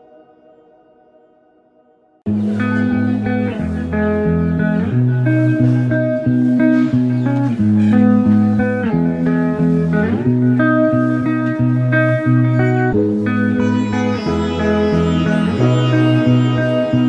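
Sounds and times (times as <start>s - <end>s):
plucked guitar tune: 2.3s - 17.0s
bass line: 6.8s - 17.0s.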